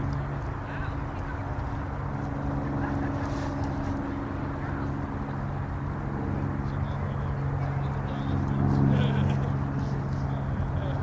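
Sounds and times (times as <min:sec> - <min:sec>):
constant rushing noise: 0:00.0 - 0:11.0
low hum with level tones: 0:00.0 - 0:11.0.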